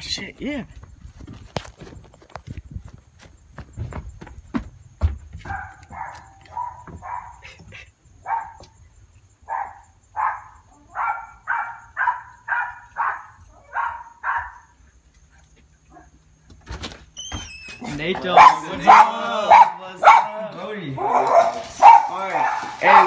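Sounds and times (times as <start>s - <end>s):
small dog barking: 5.4s - 7.4s, 8.2s - 8.6s, 9.5s - 14.8s, 18.3s - 20.4s, 21.0s - 23.0s.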